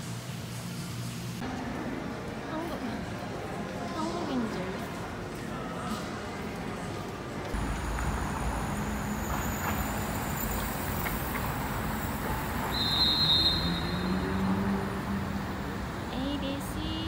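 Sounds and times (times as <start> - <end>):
traffic engines passing: 7.5 - 17.0.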